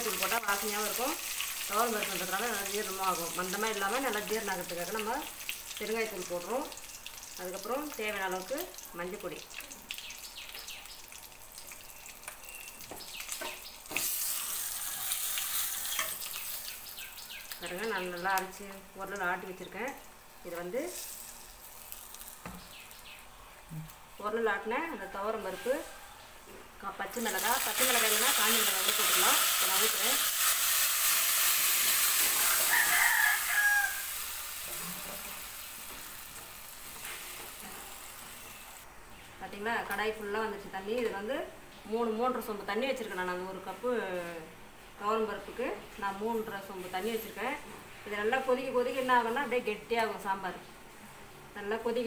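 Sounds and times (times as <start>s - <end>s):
spices sizzling in hot oil: 0.0s - 23.2s, 27.1s - 38.9s
rooster crowing: 32.3s - 34.3s.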